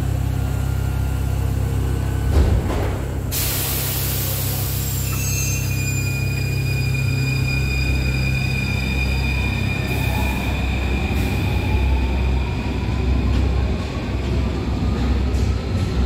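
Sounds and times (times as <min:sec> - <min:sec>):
wheels rumbling on rails: 0:04.3 - 0:16.0.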